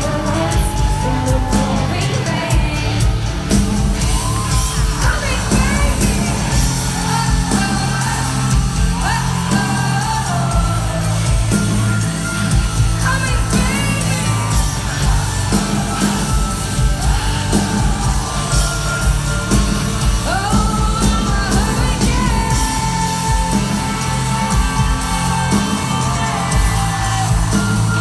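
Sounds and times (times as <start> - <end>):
person singing: 0.0 - 12.0, 20.0 - 28.0
crowd yelling along: 0.0 - 28.0
heavy bass: 0.0 - 28.0
live pop concert music: 0.0 - 28.0.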